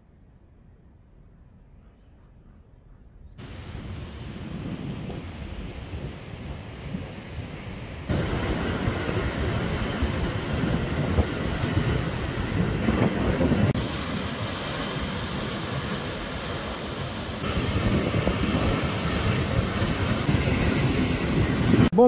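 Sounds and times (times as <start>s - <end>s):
surf breaking on rocks: 12.6s - 20.4s.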